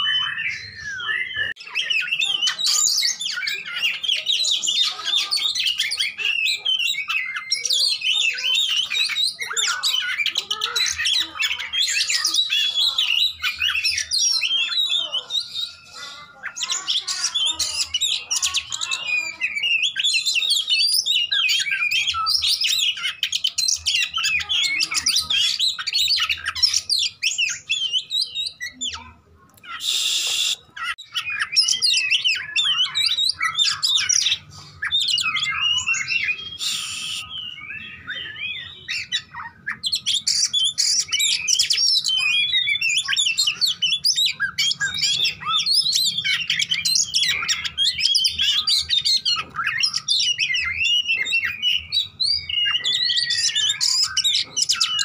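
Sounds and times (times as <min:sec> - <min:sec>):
bird singing rapid whistles: 0:00.0 - 0:10.3, 0:29.6 - 0:55.0.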